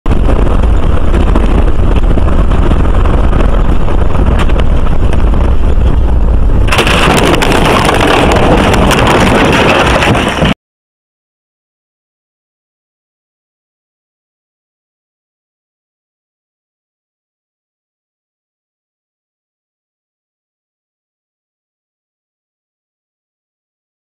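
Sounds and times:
vehicle road rumble: 0:00.0 - 0:10.6
wind buffeting microphone: 0:00.1 - 0:10.6
vehicle crash knocks: 0:06.7 - 0:10.6.

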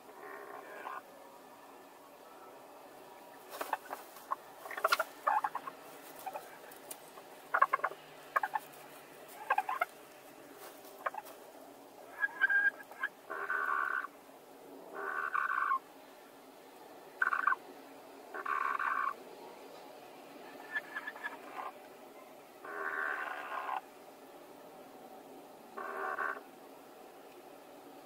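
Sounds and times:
hens clucking: 0:00.0 - 0:01.1, 0:03.1 - 0:14.2, 0:14.9 - 0:15.9, 0:17.2 - 0:17.7, 0:18.3 - 0:19.2, 0:20.4 - 0:21.9, 0:22.6 - 0:23.9, 0:25.7 - 0:26.5
hens drawn-out calls: 0:00.0 - 0:01.1, 0:02.5 - 0:11.4, 0:12.0 - 0:14.2, 0:14.9 - 0:15.9, 0:17.2 - 0:17.7, 0:18.3 - 0:19.2, 0:20.4 - 0:21.8, 0:22.6 - 0:23.9, 0:25.7 - 0:26.6.

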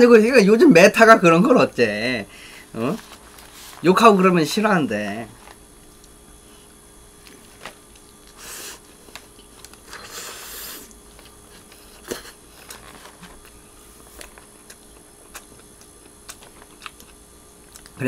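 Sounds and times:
man chewing food: 0:05.4 - 0:18.0.

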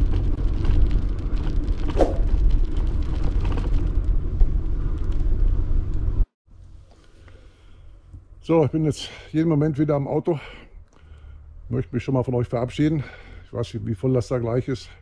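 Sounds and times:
wind rumble on microphone: 0:00.0 - 0:06.3
bicycle tyre noise: 0:00.0 - 0:08.0.

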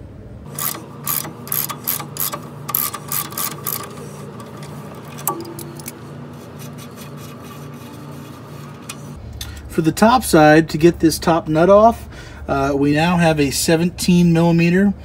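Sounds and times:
ratchet clicking: 0:00.5 - 0:06.0.

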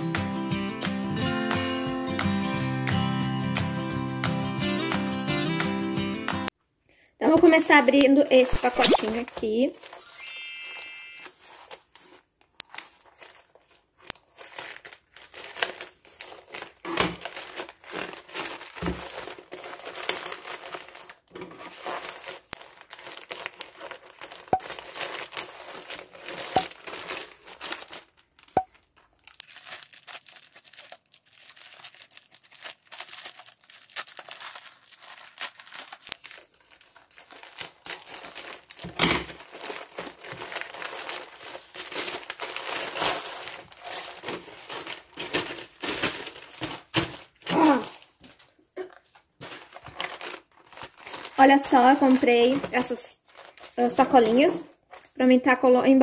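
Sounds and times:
plastic packaging crinkling: 0:07.6 - 0:55.2
scissors cutting plastic: 0:11.2 - 0:48.0.

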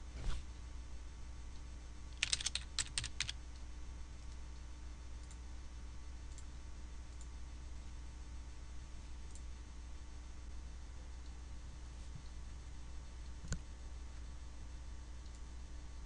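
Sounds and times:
low steady hum: 0:00.0 - 0:16.0
typing on computer keyboard: 0:02.2 - 0:03.4.

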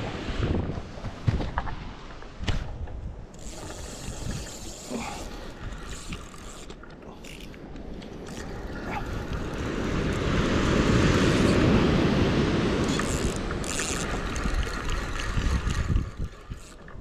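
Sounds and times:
wind buffeting microphone: 0:00.0 - 0:06.6, 0:07.2 - 0:17.0
breaking surf: 0:08.5 - 0:16.0.

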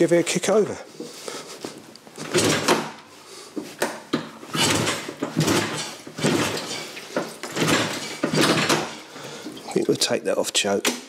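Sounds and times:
motorcycle engine turning over: 0:02.2 - 0:03.0, 0:04.1 - 0:09.2.

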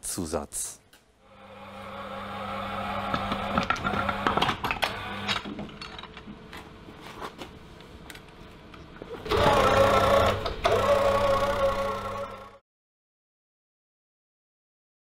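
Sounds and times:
small electric motor whirring: 0:01.3 - 0:05.3, 0:09.3 - 0:12.6.

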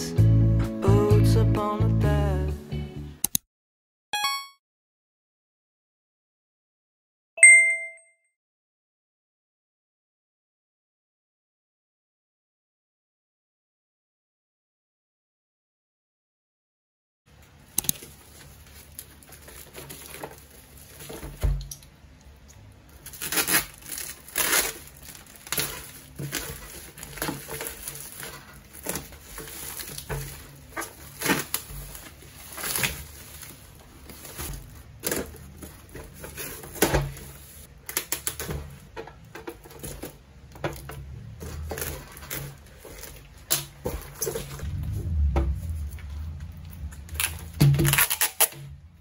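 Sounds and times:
plastic and bubble wrap crinkling: 0:17.4 - 0:48.8.

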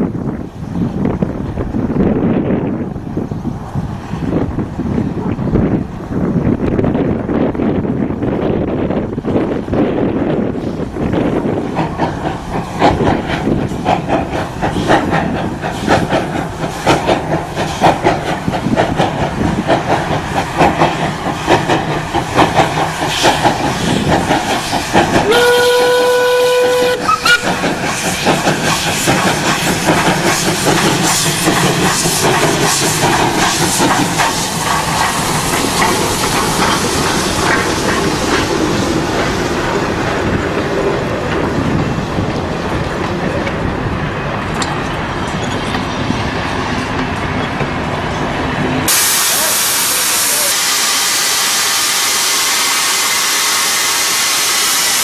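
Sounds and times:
steam locomotive exhaust beating: 0:00.0 - 0:55.0
train wheels clattering: 0:09.3 - 0:55.0
steam whistle: 0:25.2 - 0:27.6.

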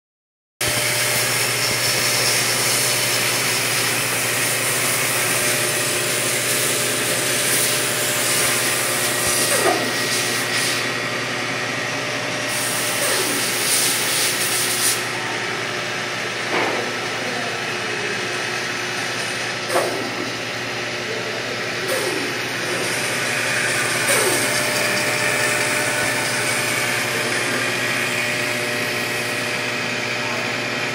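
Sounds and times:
bandsaw cutting wood: 0:00.6 - 0:11.0, 0:12.5 - 0:15.2, 0:21.8 - 0:30.4.

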